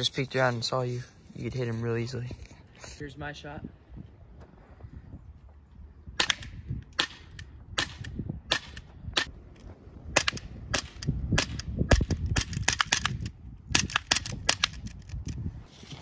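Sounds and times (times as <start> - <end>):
airsoft pistol shots: 6.2 - 9.3, 10.1 - 14.7.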